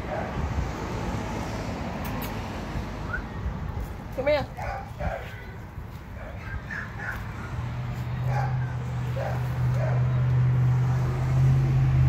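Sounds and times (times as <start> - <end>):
low engine hum: 7.0 - 12.0.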